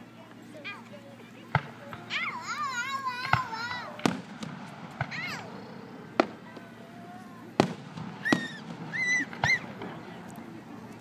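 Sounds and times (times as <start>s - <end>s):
fireworks bursting with bangs: 1.5s - 2.2s, 3.2s - 10.9s.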